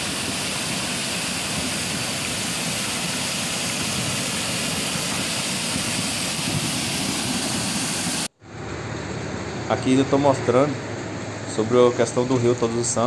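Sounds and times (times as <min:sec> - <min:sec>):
floodwater rushing into gully: 0:00.0 - 0:13.0.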